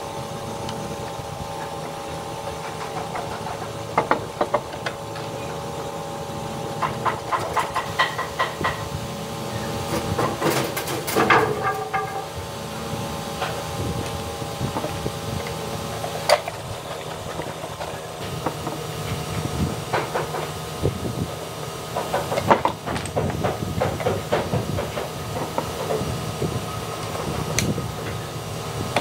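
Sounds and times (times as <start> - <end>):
steady hum: 0.0 - 29.0.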